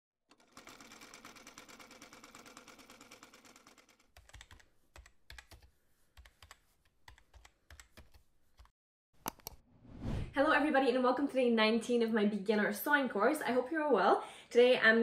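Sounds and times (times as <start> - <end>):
computer keyboard typing: 0.3 - 8.7.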